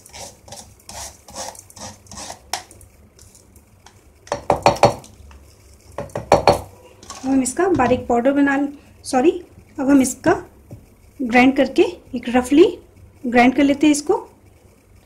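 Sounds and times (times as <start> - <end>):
spatula scraping strainer: 0.0 - 4.0.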